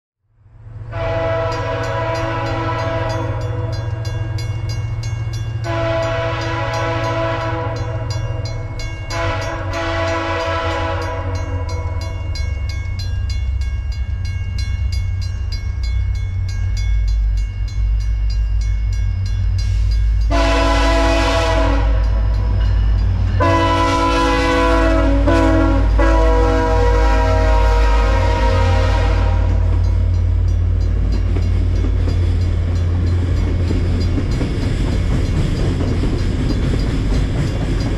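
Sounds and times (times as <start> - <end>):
diesel train engine rumble: 0.3 - 37.9
locomotive air horn blasts: 0.9 - 4.0, 5.6 - 8.2, 9.1 - 12.1, 20.3 - 22.5, 23.4 - 29.8.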